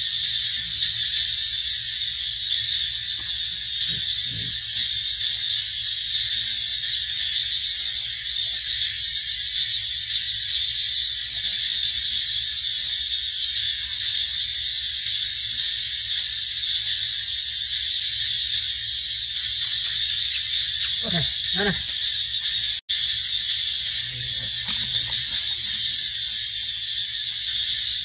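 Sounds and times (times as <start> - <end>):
high-pitched insect chorus: 0.0 - 28.0.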